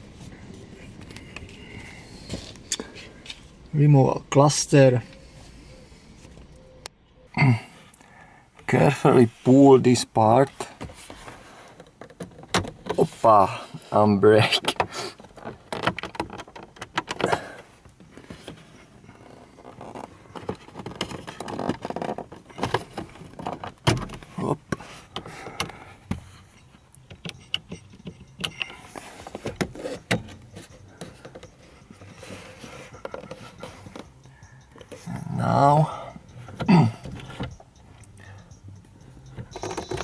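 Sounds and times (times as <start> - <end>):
plastic clicking and scraping: 11.1 - 13.2, 14.4 - 26.2, 26.9 - 35.1.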